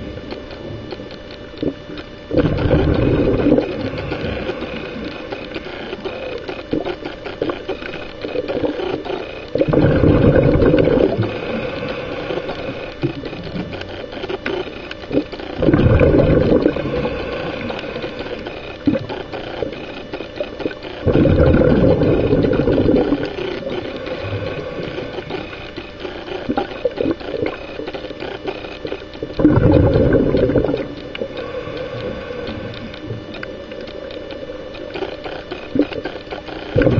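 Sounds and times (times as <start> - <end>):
water crackling and hissing: 0.0 - 36.9
exhaled bubbles bursting: 1.6 - 7.6, 8.3 - 11.6, 15.1 - 19.7, 20.4 - 25.6, 29.2 - 33.3.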